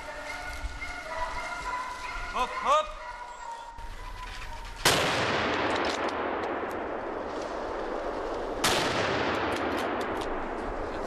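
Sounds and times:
rifle shots echoing: 4.8s - 10.6s.

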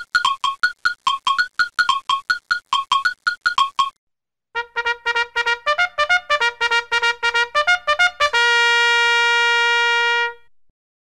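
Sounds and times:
trumpet fanfare: 4.6s - 10.5s.

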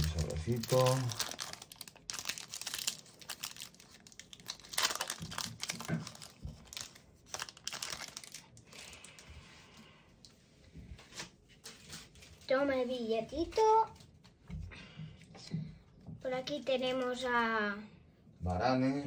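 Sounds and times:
foil pack crinkling: 0.0s - 9.3s.

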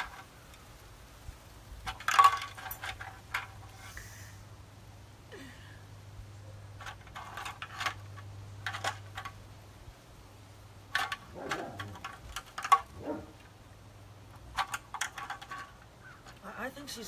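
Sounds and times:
light clicking and rattling: 1.8s - 4.2s, 6.7s - 9.6s, 10.8s - 17.0s.

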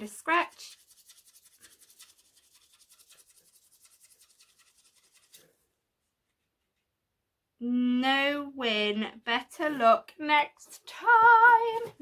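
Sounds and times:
scratch card scratching: 0.3s - 5.6s.

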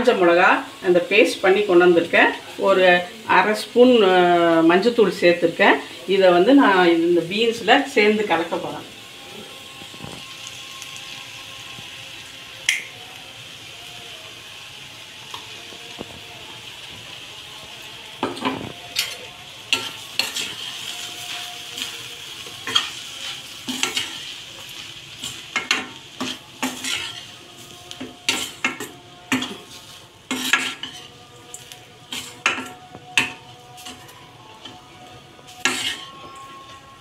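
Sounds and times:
low sizzle: 0.0s - 37.0s
metal spatula scraping a pan: 18.2s - 37.0s.

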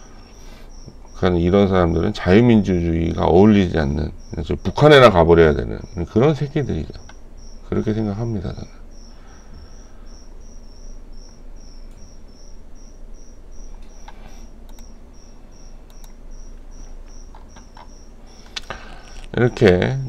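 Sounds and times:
cricket chirping: 0.0s - 20.0s
low background hum: 0.0s - 20.0s
faint clicks: 13.7s - 15.0s, 15.8s - 19.8s.

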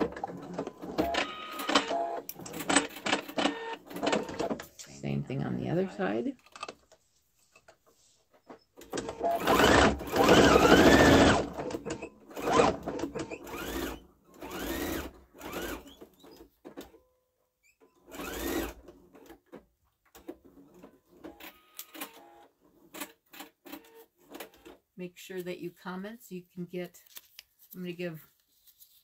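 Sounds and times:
sewing machine stitching: 0.0s - 4.7s, 8.8s - 16.8s, 17.9s - 19.6s.

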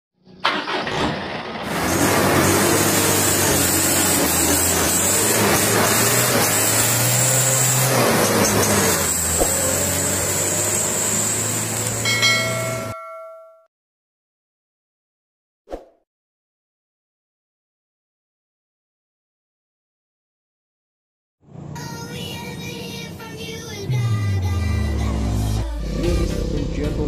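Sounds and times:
truck engine running: 0.4s - 13.0s, 21.5s - 27.0s
bell ding: 12.0s - 13.7s.

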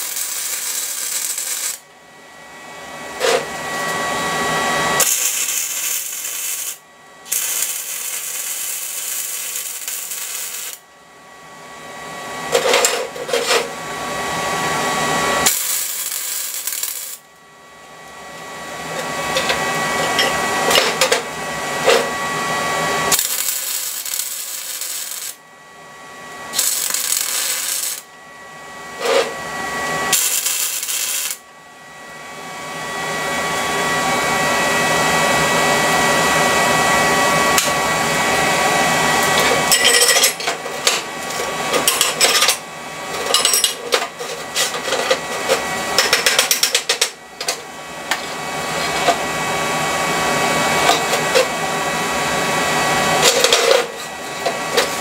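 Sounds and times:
welding arc crackling: 0.0s - 1.9s, 5.0s - 10.8s, 15.4s - 17.2s, 23.0s - 25.4s, 26.5s - 28.1s, 30.1s - 31.4s.

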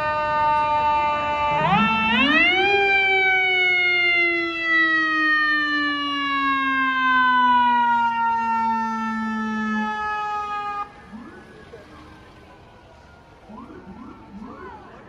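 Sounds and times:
mechanical fire siren winding down: 0.0s - 15.0s.

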